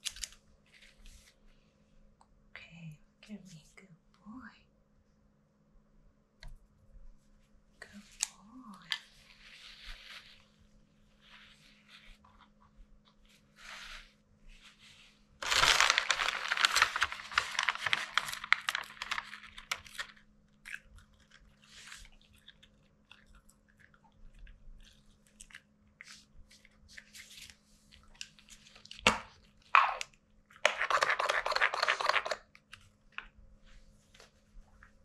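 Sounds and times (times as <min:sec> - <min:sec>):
paper tissue crinkling: 0:09.2 - 0:20.2.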